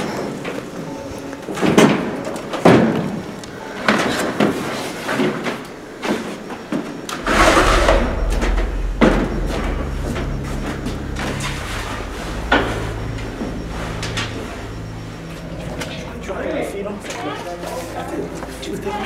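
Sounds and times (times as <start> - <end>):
low hum: 7.1 - 19.0.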